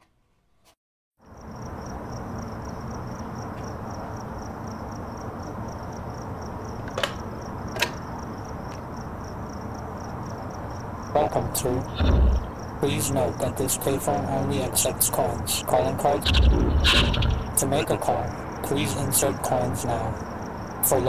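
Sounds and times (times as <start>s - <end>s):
crickets chirping: 1.2s - 21.0s
low background rumble: 11.2s - 20.2s
sharp clicks: 16.2s - 17.6s.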